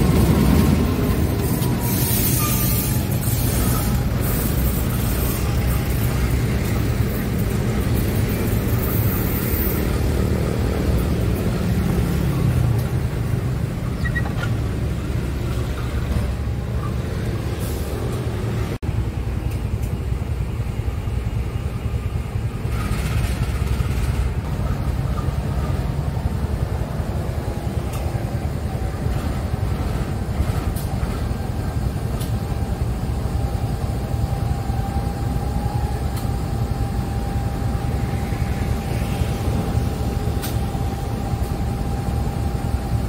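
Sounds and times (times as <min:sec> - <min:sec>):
diesel locomotive engine rumbling: 0:00.0 - 0:43.0.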